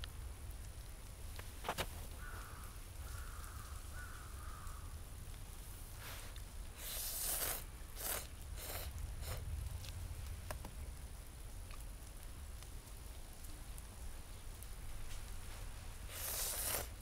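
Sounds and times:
distant bird calling: 0:02.1 - 0:05.0
crunching movement in snow: 0:14.9 - 0:17.0.

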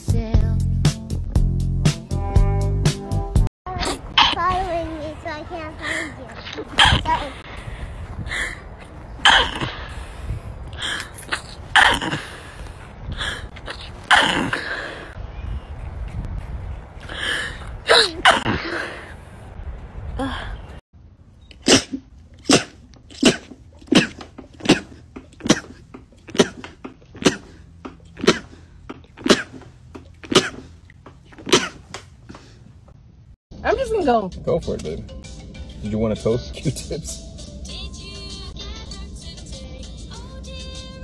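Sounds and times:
rapid short sneezes: 0:06.8 - 0:07.2, 0:21.6 - 0:27.6, 0:28.2 - 0:30.8, 0:31.4 - 0:32.5
woman sneezing: 0:06.8 - 0:07.2, 0:21.6 - 0:26.6
breaths between sneezes: 0:21.6 - 0:27.6, 0:28.2 - 0:30.8.

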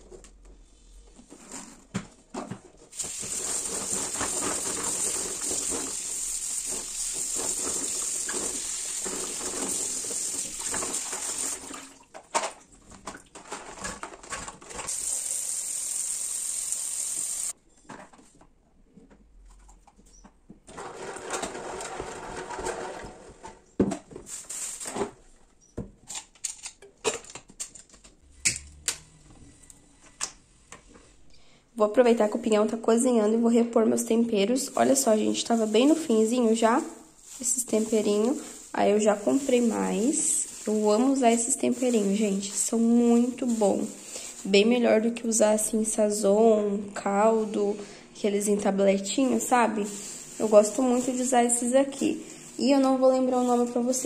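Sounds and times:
tap water running into sink: 0:03.0 - 0:11.8.

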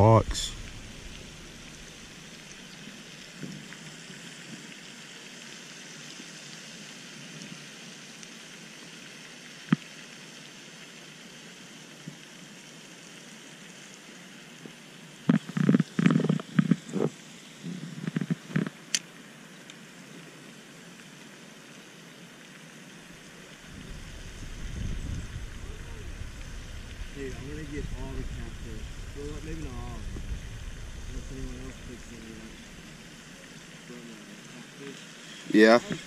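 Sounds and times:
low outdoor hiss: 0:00.0 - 0:36.0
rustles and knocks on camera: 0:15.3 - 0:17.2, 0:17.9 - 0:18.8.

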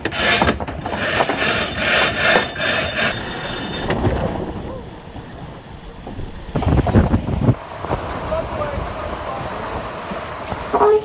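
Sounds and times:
even rush of noise: 0:02.6 - 0:11.0.

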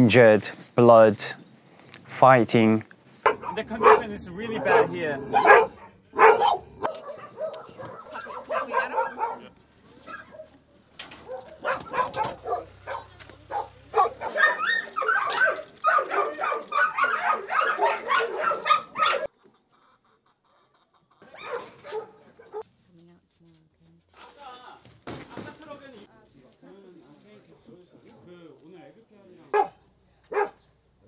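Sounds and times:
many dogs barking: 0:03.2 - 0:10.6, 0:11.2 - 0:19.3, 0:21.2 - 0:22.6, 0:29.4 - 0:30.6.

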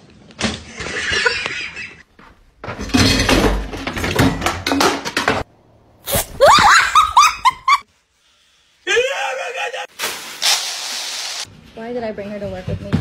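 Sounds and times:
high-pitched cries: 0:06.4 - 0:07.8.

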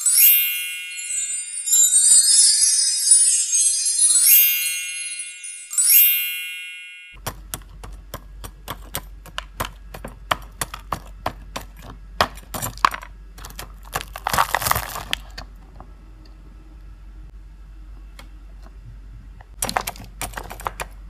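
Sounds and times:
crunchy breading crackling: 0:13.6 - 0:15.4.

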